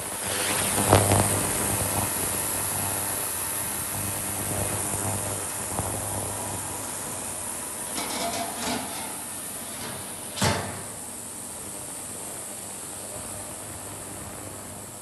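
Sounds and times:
steady hiss: 0:00.0 - 0:13.4
metal lid clattering: 0:07.9 - 0:09.2.

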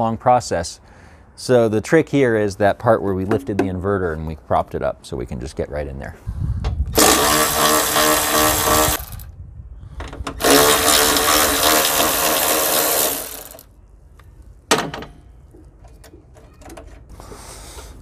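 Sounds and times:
electric ratchet motor whine: 0:07.0 - 0:09.3, 0:10.4 - 0:13.6.

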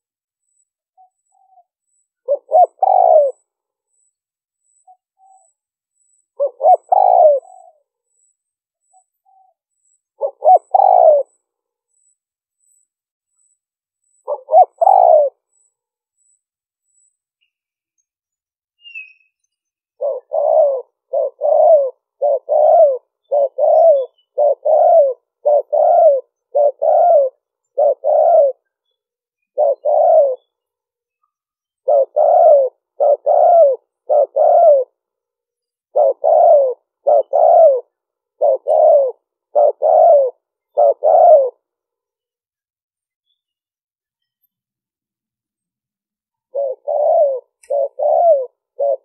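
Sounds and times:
dove cooing: 0:01.0 - 0:03.5, 0:04.7 - 0:07.9, 0:10.2 - 0:11.4, 0:14.2 - 0:15.4, 0:20.0 - 0:28.7, 0:29.5 - 0:30.6, 0:31.8 - 0:35.0, 0:35.8 - 0:41.7, 0:46.5 - 0:49.0.

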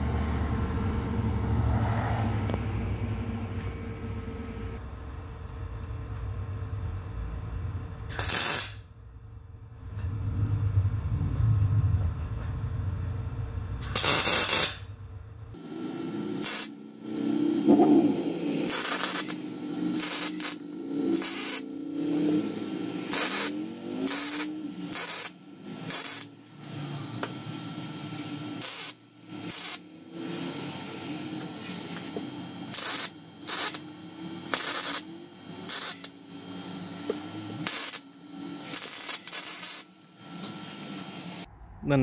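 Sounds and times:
welding arc crackling: 0:08.1 - 0:08.9, 0:13.8 - 0:14.9, 0:16.3 - 0:17.1, 0:18.0 - 0:26.5, 0:27.8 - 0:29.9, 0:31.8 - 0:36.4, 0:37.1 - 0:41.5.

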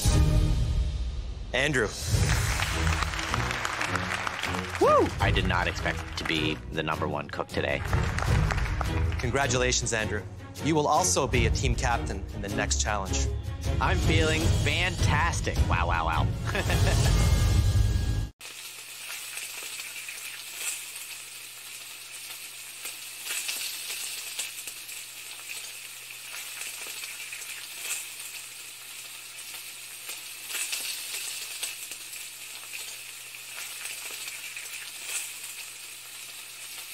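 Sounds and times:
food sizzling in frying pan: 0:02.0 - 0:06.6, 0:16.6 - 0:17.7, 0:18.3 - 0:36.9.

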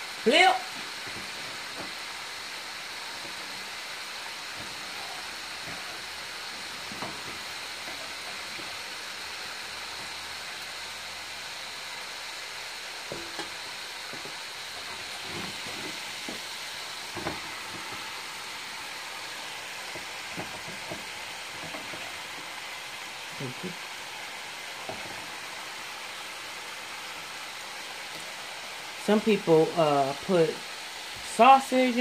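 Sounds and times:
potatoes sizzling in oil: 0:00.0 - 0:32.0
spatula scraping a pan: 0:03.0 - 0:10.6, 0:13.1 - 0:18.2.

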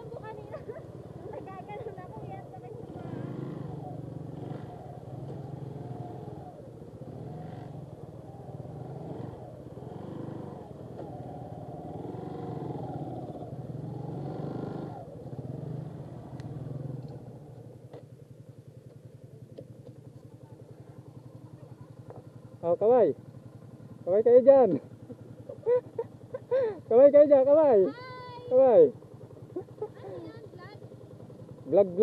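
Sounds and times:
voices: 0:00.0 - 0:05.5, 0:18.9 - 0:32.0
motorcycle engine idling: 0:00.0 - 0:32.0.

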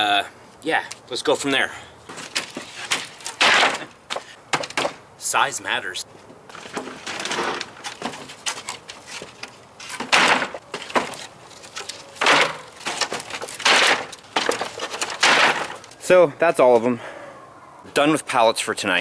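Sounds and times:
knocks and scrapes: 0:02.1 - 0:05.0, 0:06.5 - 0:16.0
wooden pallets clattering: 0:02.1 - 0:05.0, 0:06.5 - 0:16.0.

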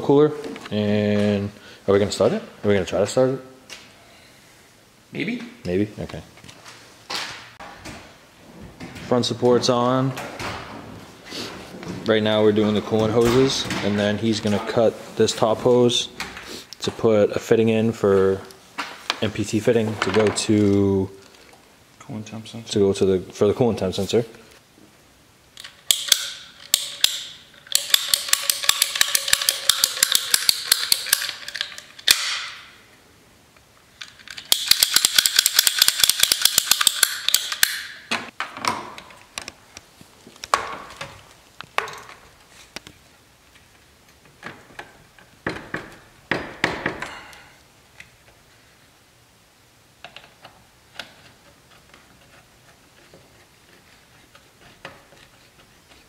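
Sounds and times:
hose cutter ratcheting clicks: 0:25.6 - 0:32.4, 0:34.2 - 0:37.9
scattered clicks and knocks: 0:25.6 - 0:32.6, 0:34.0 - 0:39.6, 0:44.1 - 0:47.2.

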